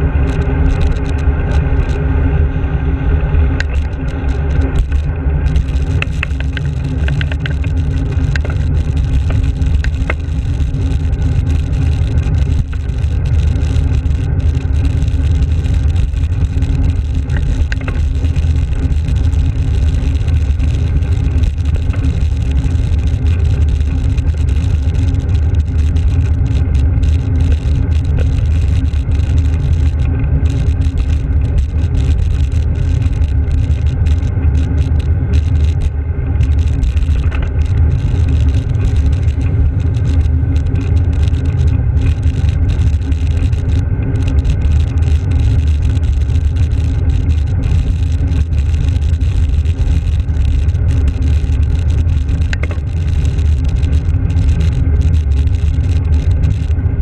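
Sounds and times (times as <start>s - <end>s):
car traffic: 0.0s - 45.2s
wind rumble on microphone: 0.0s - 57.0s.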